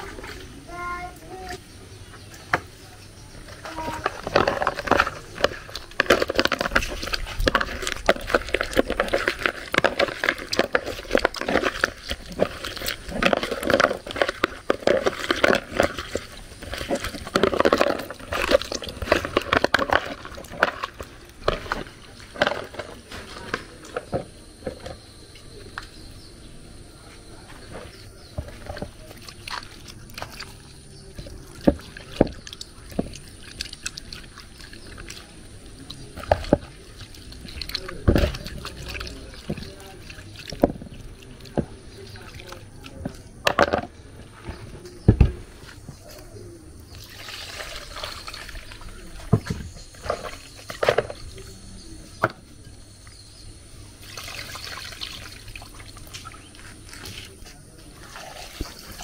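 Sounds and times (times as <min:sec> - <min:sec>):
hands scrubbing in water: 0:03.5 - 0:24.1, 0:28.4 - 0:43.4, 0:54.0 - 0:59.0.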